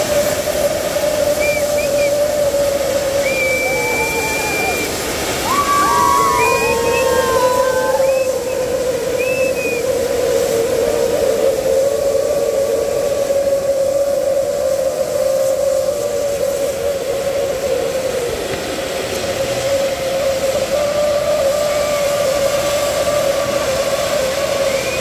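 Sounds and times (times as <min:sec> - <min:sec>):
fireworks fountain rushing hiss: 0:00.0 - 0:25.0
sustained whistling tone: 0:00.0 - 0:25.0.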